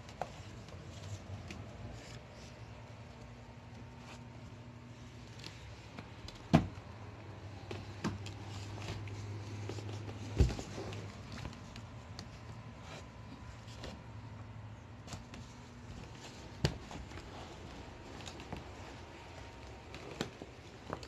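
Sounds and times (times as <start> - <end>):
steady low hum: 0.0 - 21.0
light knocks of handling: 7.6 - 14.0.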